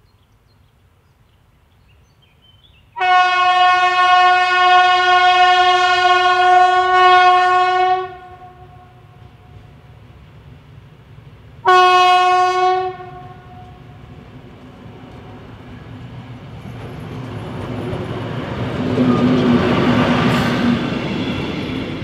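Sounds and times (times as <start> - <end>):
train engine and wheels passing: 0.2 - 22.0
locomotive horn blast: 3.0 - 9.5, 11.6 - 14.0.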